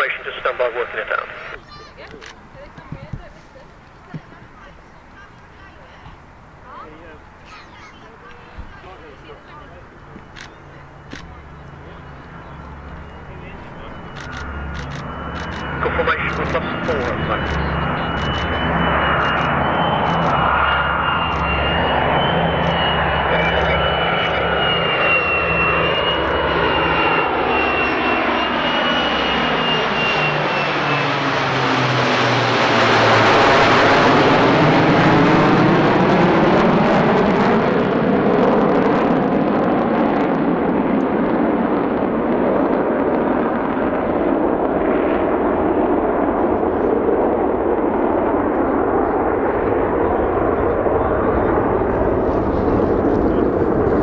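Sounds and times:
high jet whine falling in pitch: 0.0s - 1.8s, 6.6s - 54.0s
aircraft engine drone: 0.0s - 54.0s.

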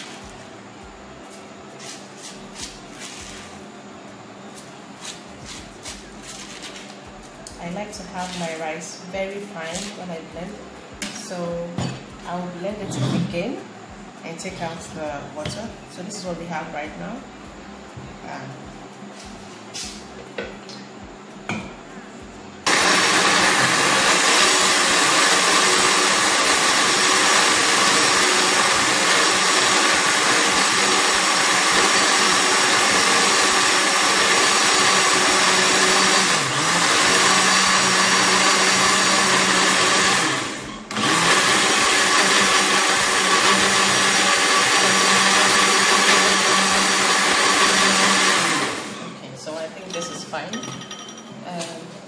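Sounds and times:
blender motor grinding: 22.7s - 49.1s.

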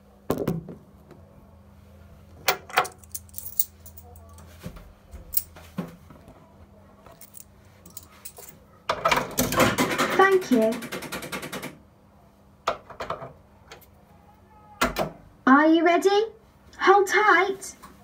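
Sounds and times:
low steady hum: 0.0s - 8.8s
metallic jangles: 2.7s - 4.5s, 5.3s - 5.5s, 7.1s - 8.6s.

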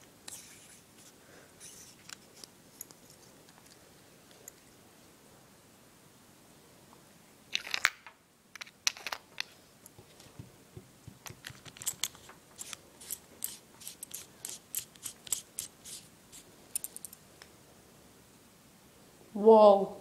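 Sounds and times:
laser pointer clicks and scrapes: 11.5s - 16.1s.

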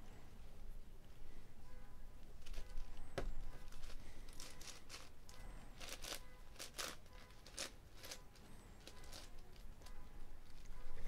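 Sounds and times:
puzzle cube clacking: 2.4s - 5.2s, 5.8s - 11.0s
cube layers scraping: 5.8s - 9.7s.

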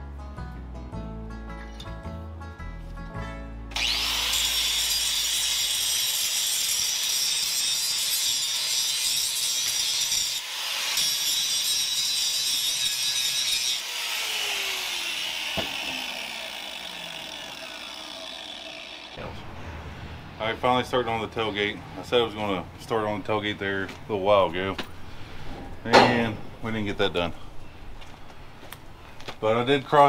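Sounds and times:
motor winding down whine: 3.7s - 4.3s, 14.1s - 19.2s
angle grinder grinding steel: 3.7s - 19.2s.

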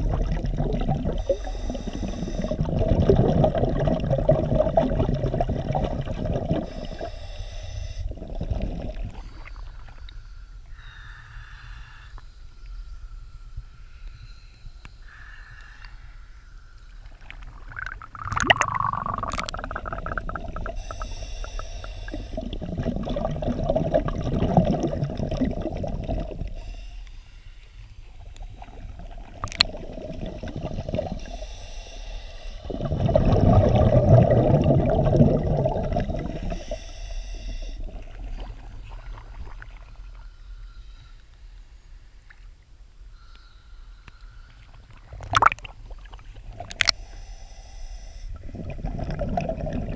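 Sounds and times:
air bubbling underwater: 0.0s - 7.1s, 17.4s - 26.6s, 29.0s - 31.3s, 32.6s - 36.7s, 45.2s - 45.7s, 48.4s - 49.9s
flowing air tone: 0.0s - 42.3s, 43.0s - 49.9s.

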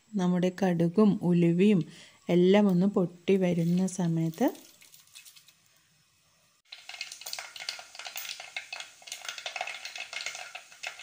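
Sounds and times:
seeds crackling in hot oil: 2.5s - 6.0s, 6.6s - 11.0s.

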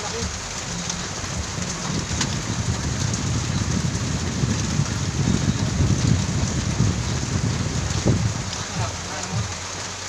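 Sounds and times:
low rumble: 0.0s - 10.0s
steady rain falling: 0.0s - 10.0s.

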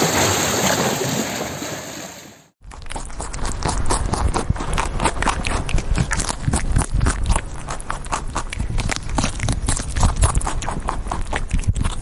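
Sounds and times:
rabbit chewing grass: 2.7s - 12.0s.

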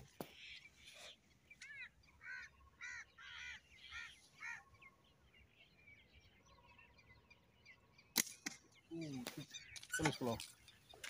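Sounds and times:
small birds chirping: 0.0s - 11.0s
bird harsh call: 0.3s - 5.0s, 9.0s - 10.9s.

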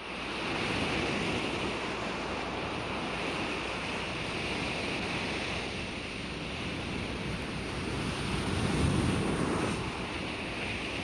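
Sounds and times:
steady rushing surf-like noise: 0.0s - 11.0s.

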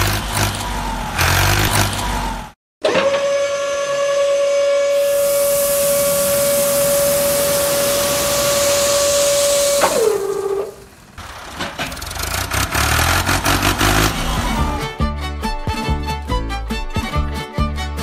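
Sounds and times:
sand sliding hiss: 5.0s - 10.3s.

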